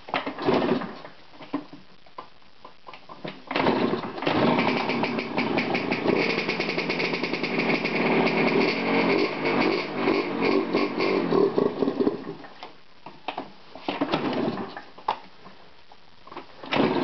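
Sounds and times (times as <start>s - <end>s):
motorbike engine running: 4.3s - 12.1s.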